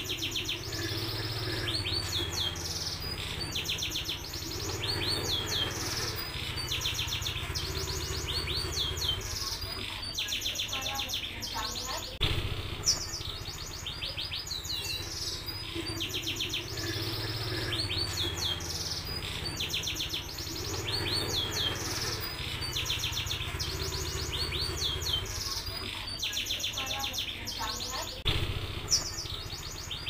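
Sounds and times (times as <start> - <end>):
canary singing trills: 0.0 - 30.0.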